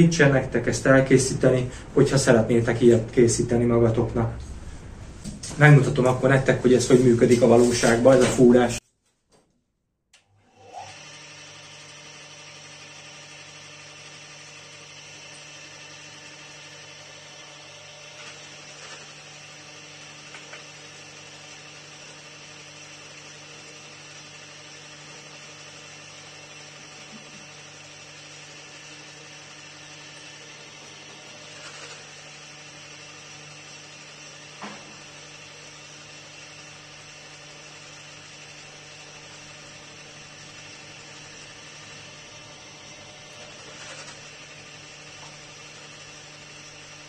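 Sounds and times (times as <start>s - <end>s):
drill press motor hum: 10.2s - 47.0s.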